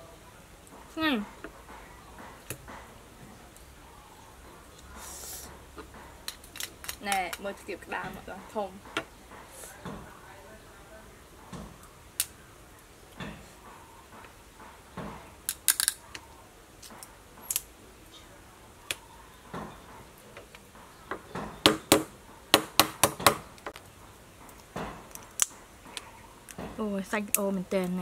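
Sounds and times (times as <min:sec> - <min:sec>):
crab shell cracking and snapping: 0:15.5 - 0:16.0, 0:24.5 - 0:26.6.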